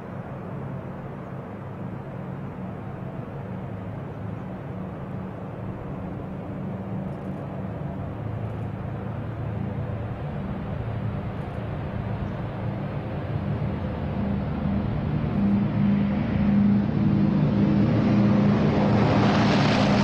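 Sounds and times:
propeller airliner engines drone: 0.0s - 20.0s.

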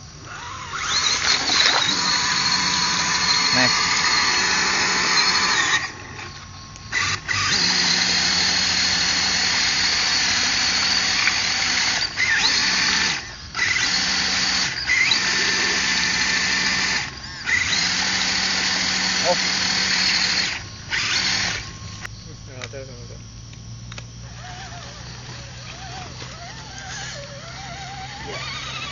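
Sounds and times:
electric motor whining: 0.0s - 28.9s.

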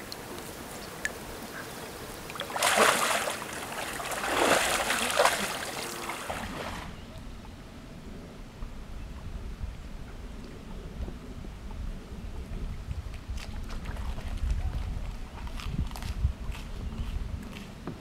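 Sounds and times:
splashing in shallow water: 0.0s - 7.1s, 13.1s - 16.1s.

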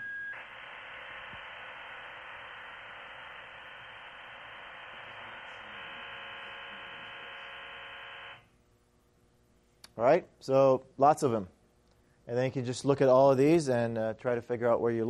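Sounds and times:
digital radio data signal: 0.0s - 8.4s.

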